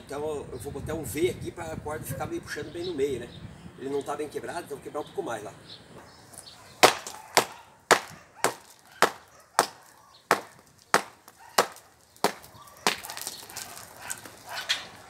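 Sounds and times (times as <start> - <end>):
hammer striking concrete: 6.8 - 13.6.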